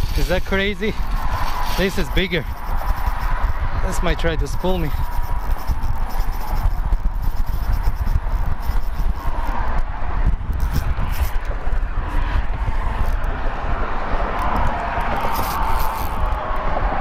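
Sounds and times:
faint steady whine: 0:00.0 - 0:09.9
wind buffeting microphone: 0:00.0 - 0:17.0.

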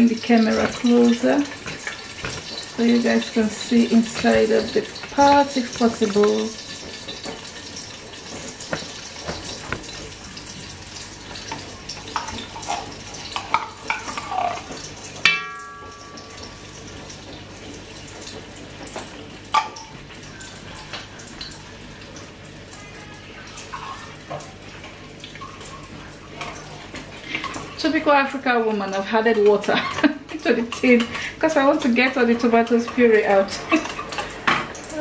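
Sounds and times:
paste sizzling in hot oil: 0:00.0 - 0:15.3.

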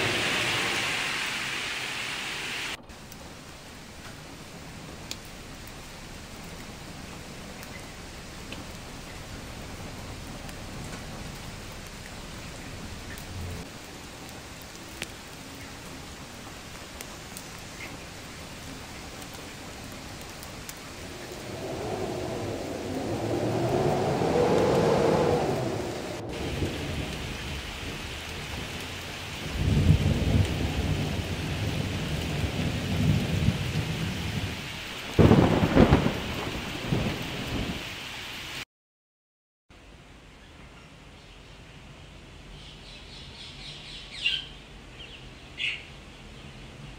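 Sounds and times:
thunder rumbling: 0:00.0 - 0:17.0, 0:17.9 - 0:38.0
raindrops ticking on surfaces: 0:00.0 - 0:38.6
steady rain: 0:00.0 - 0:38.6, 0:39.8 - 0:46.9.

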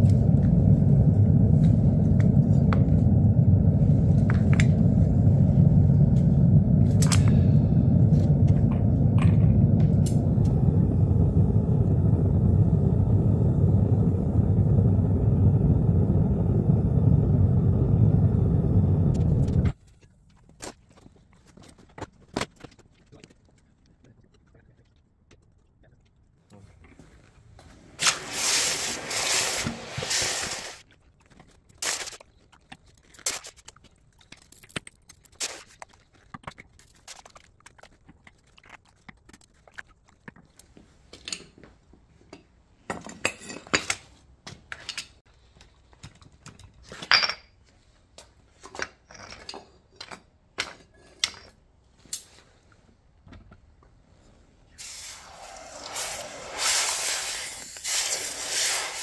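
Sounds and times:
hot metal hissing in water: 0:28.0 - 0:30.8, 0:54.8 - 0:59.0.

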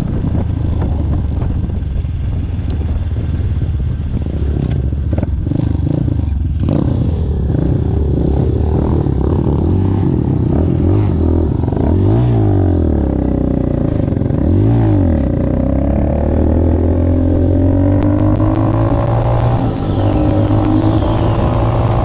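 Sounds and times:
dirt bike engine revving: 0:15.5 - 0:22.0.

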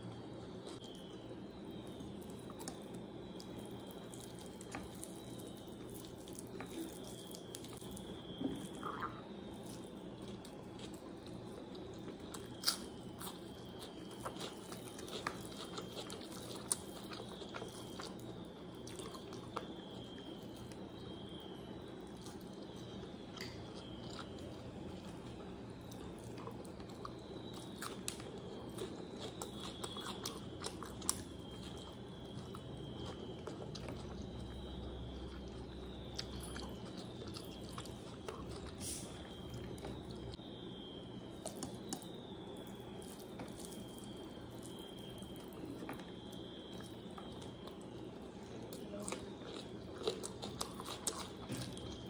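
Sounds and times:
faint high chirp: 0:00.1 - 0:52.0
chewing food: 0:00.6 - 0:52.0.

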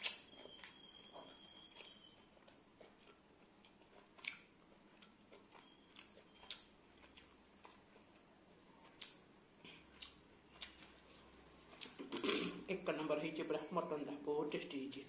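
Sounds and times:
wet mouth clicks and smacks: 0:00.0 - 0:00.8, 0:04.2 - 0:07.8
person chewing: 0:00.0 - 0:12.7.

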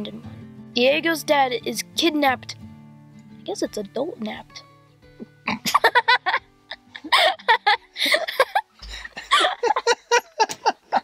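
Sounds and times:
background music: 0:00.0 - 0:11.0
child giggling: 0:05.5 - 0:11.0.

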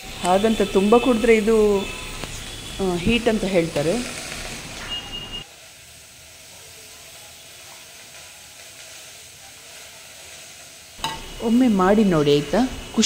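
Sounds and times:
pot simmering with hiss and bubbling: 0:00.0 - 0:13.0
brief high tone: 0:04.8 - 0:05.4.

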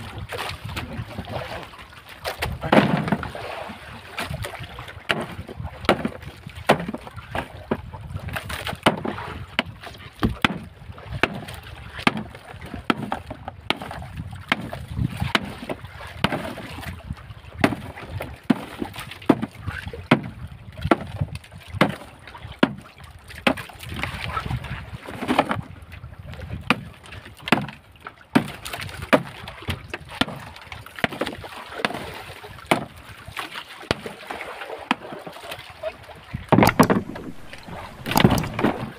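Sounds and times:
boat rumble and water wash: 0:00.0 - 0:38.9
ice knocks and crunches: 0:36.5 - 0:38.9.

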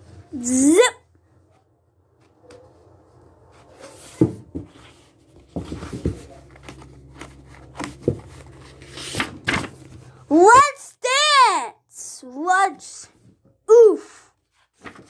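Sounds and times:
paper rustling: 0:03.5 - 0:10.2, 0:14.4 - 0:15.0.

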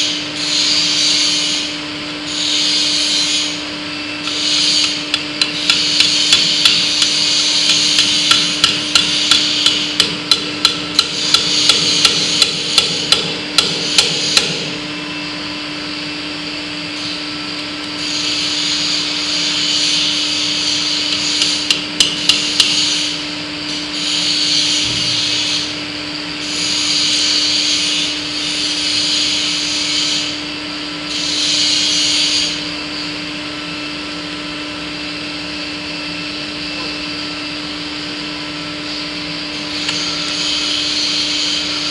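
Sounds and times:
steady hum: 0:00.0 - 0:41.9
hammer striking steel punch: 0:04.3 - 0:14.8, 0:21.1 - 0:23.0.

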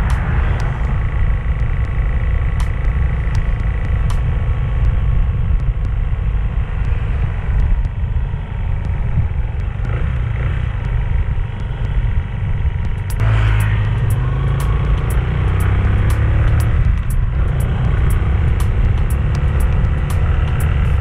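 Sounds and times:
wind buffeting microphone: 0:00.0 - 0:14.5
motorcycle engine running: 0:00.0 - 0:21.0.

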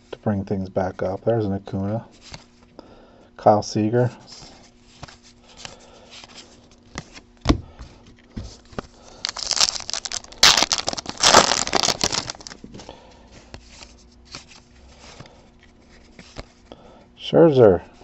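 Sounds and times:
foil wrapper crinkling and tearing: 0:09.0 - 0:12.7.

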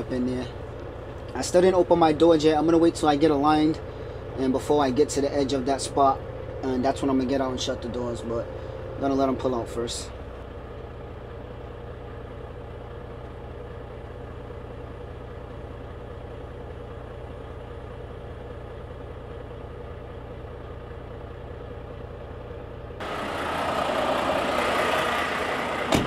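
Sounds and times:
diesel truck engine idling: 0:00.0 - 0:26.0.

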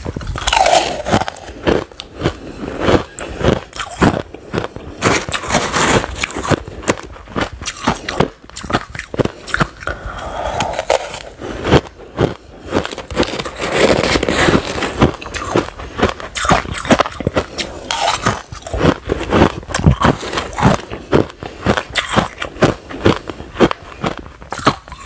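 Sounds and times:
crushed ice being chewed: 0:00.0 - 0:25.0
spoon scraping through ice: 0:00.2 - 0:01.6, 0:05.0 - 0:06.6, 0:07.6 - 0:11.4, 0:12.8 - 0:15.6, 0:16.3 - 0:18.8, 0:19.7 - 0:20.7.

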